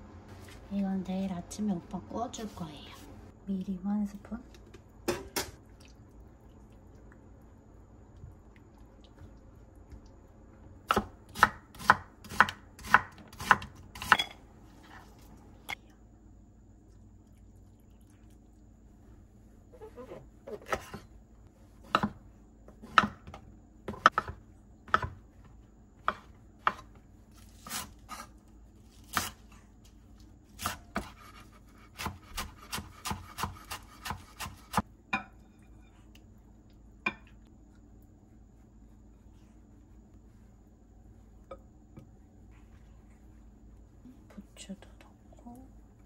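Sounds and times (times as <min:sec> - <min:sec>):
knife chopping on cutting board: 0:10.9 - 0:14.3, 0:21.8 - 0:22.2, 0:22.8 - 0:25.2, 0:26.0 - 0:27.0, 0:30.6 - 0:34.8.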